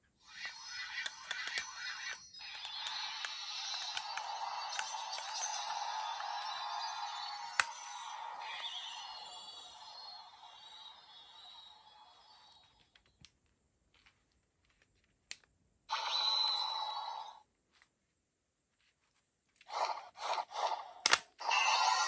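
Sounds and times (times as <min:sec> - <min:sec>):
electronic music from small speaker: 0:00.3 - 0:12.6
plastic click: 0:01.0 - 0:05.4.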